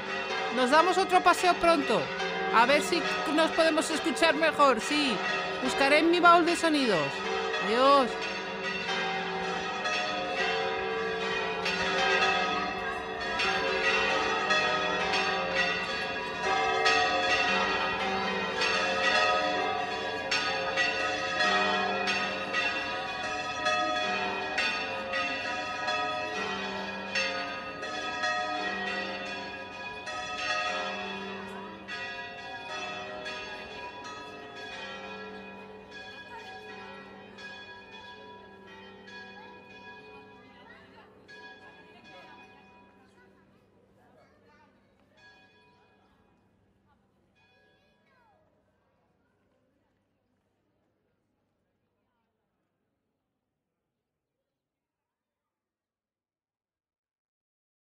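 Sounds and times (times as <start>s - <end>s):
church bells pealing: 0.0s - 43.0s.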